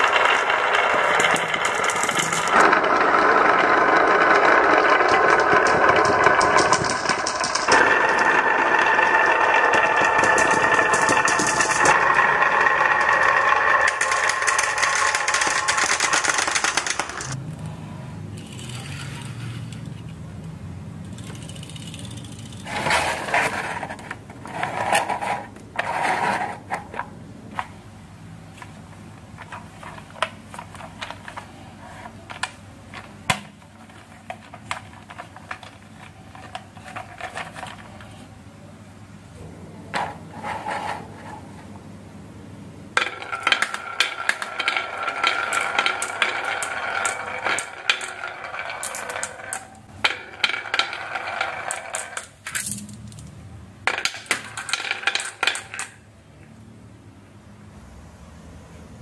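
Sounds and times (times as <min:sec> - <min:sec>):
glass marbles rolling and clicking: 0:00.0 - 0:17.4, 0:21.1 - 0:23.3, 0:43.0 - 0:53.3, 0:53.9 - 0:56.0
plastic toy truck clicks and knocks: 0:04.8 - 0:08.0, 0:09.2 - 0:12.0, 0:13.1 - 0:17.4.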